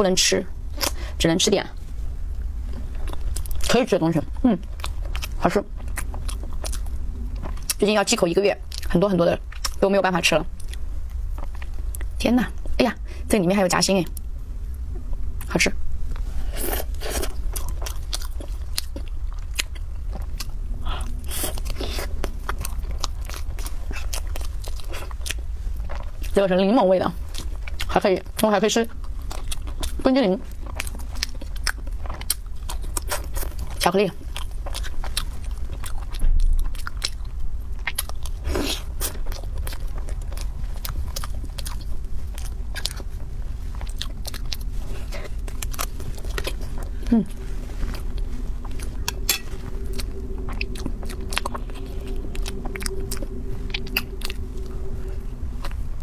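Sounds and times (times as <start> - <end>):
low hum: 0.0 - 56.0
chewing and biting cake: 16.8 - 26.4, 27.2 - 55.8.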